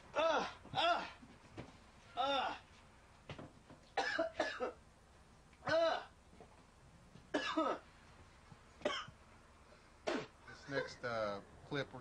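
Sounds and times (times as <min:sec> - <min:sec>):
man coughing: 0:04.0 - 0:04.8, 0:07.3 - 0:07.8, 0:08.8 - 0:09.1.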